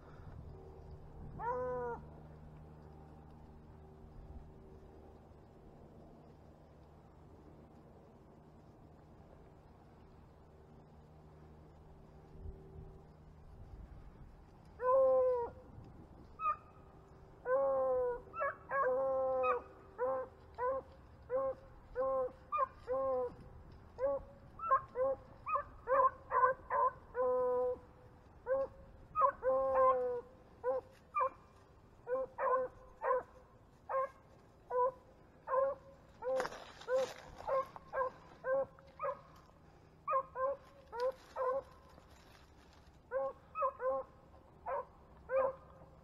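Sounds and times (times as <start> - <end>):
dogs baying and barking: 1.3 - 2.2, 17.4 - 42.0, 43.1 - 45.8.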